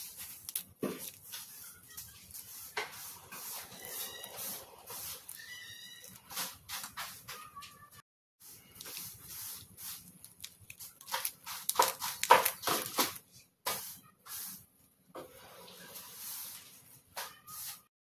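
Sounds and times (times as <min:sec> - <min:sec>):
dried fish crackling and snapping: 0:10.2 - 0:13.2.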